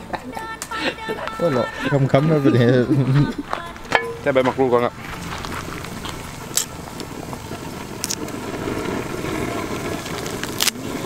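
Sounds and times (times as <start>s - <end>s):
water boiling and bubbling: 4.7s - 11.0s.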